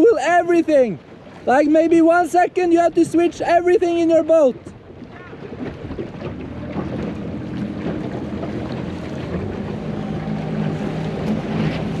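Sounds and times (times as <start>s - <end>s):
outboard motor running: 0.0s - 12.0s
water rushing past hull: 0.0s - 12.0s
wind on microphone: 2.9s - 12.0s.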